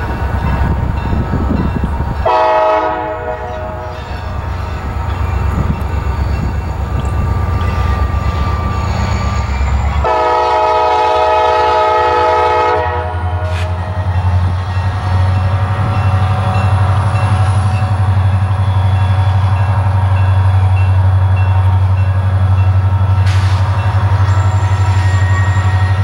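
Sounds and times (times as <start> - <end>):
rolling freight cars: 0.0 - 26.0
train air horn: 2.2 - 4.0, 10.0 - 13.8.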